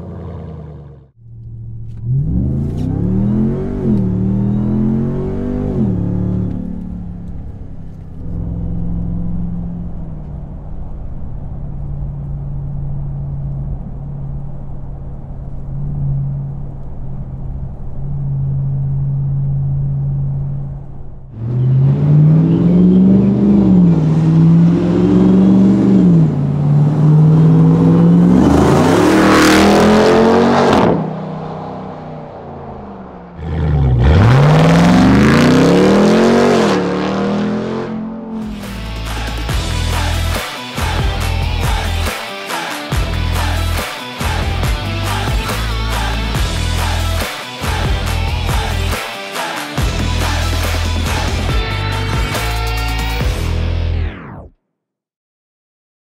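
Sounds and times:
engine drone inside cab: 0.0s - 42.1s
loud engine revving past: 21.4s - 42.1s.

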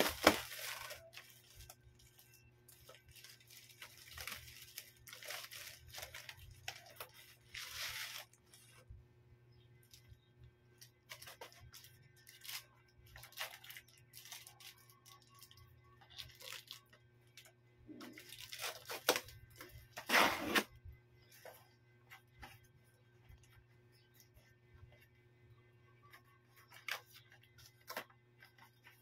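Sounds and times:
cardboard rustling and scraping: 18.2s - 22.8s.

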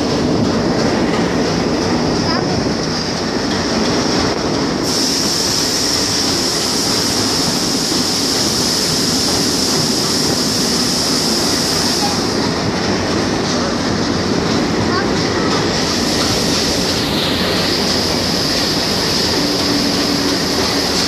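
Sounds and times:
train wheels rumbling on track: 0.0s - 21.0s
high hiss: 4.8s - 12.5s, 15.8s - 21.0s.

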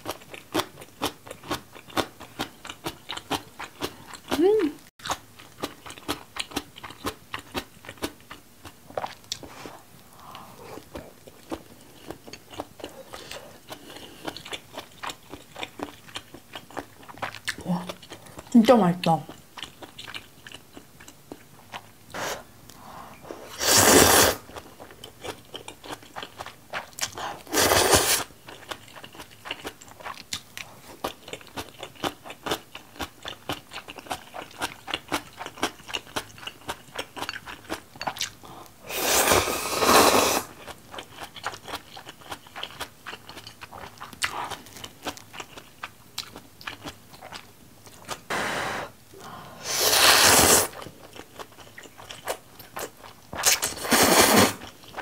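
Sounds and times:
close wet chewing: 0.0s - 4.4s, 5.0s - 23.0s, 23.6s - 48.3s, 49.6s - 55.0s
slurping noodles: 23.3s - 24.5s, 27.5s - 28.3s, 38.9s - 40.6s, 49.6s - 50.8s, 53.4s - 54.6s.

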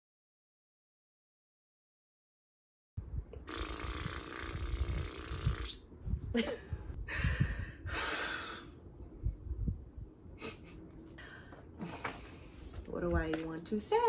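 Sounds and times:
woman breathing through mouth: 7.0s - 8.8s.

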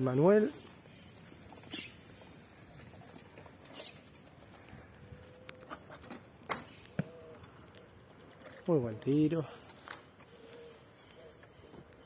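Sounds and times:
faint rustling and ticks: 0.3s - 6.2s.

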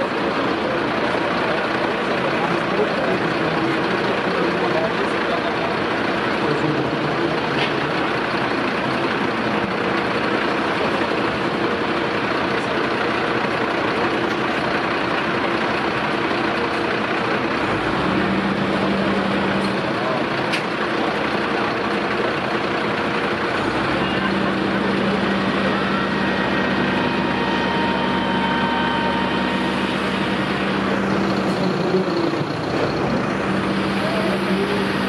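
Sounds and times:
diesel engine running: 0.0s - 35.0s.

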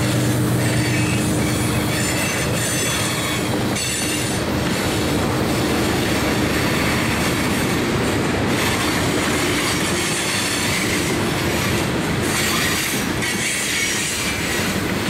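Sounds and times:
train wheels clattering on rails: 0.0s - 15.0s
wheel squeal: 0.6s - 4.4s.

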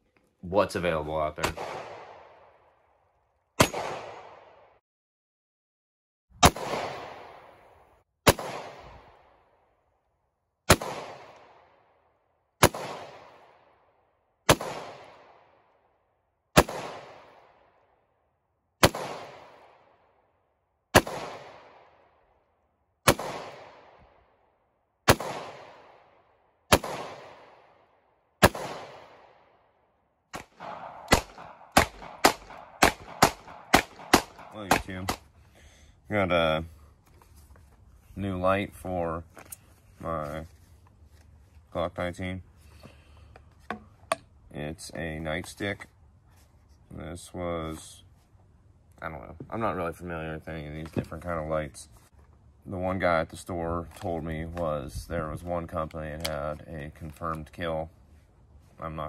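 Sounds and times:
gunshots with echo: 1.4s - 2.4s, 3.6s - 4.7s, 6.4s - 7.6s, 8.2s - 9.2s, 10.7s - 11.6s, 12.6s - 13.5s, 14.5s - 15.4s, 16.6s - 17.5s, 18.8s - 19.8s, 20.9s - 21.9s, 23.1s - 24.0s, 25.1s - 26.1s, 26.7s - 27.7s, 28.4s - 29.4s, 30.4s - 35.2s.

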